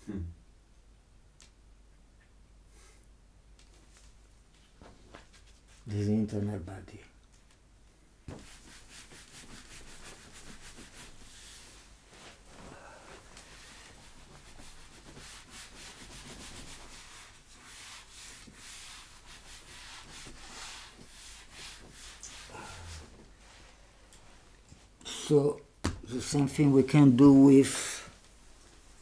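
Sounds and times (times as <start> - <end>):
eraser scrubbing whiteboard: 8.3 - 12.4, 13.3 - 23.2.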